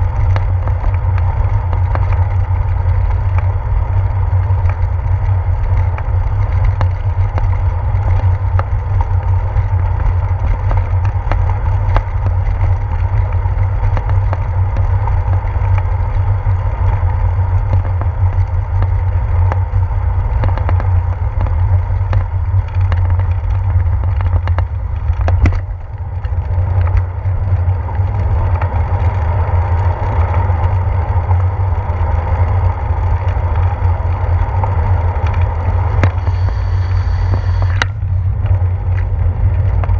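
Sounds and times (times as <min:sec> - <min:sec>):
bicycle rumbling over bricks: 0:00.0 - 0:39.9
bike clicks and knocks: 0:00.0 - 0:39.9.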